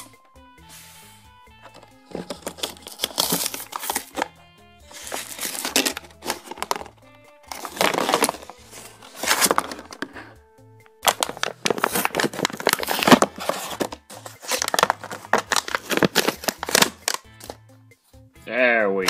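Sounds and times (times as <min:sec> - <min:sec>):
background music: 0:00.0 - 0:19.0
plastic packaging crinkling and tearing: 0:02.1 - 0:04.3, 0:04.9 - 0:06.9, 0:07.5 - 0:10.2, 0:11.0 - 0:17.6.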